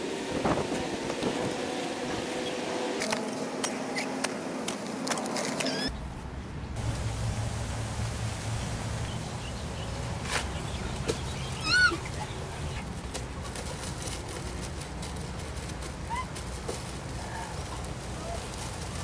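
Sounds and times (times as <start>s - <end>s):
steady low rumble: 5.9s - 14.9s
short high arching call: 10.6s - 12.5s.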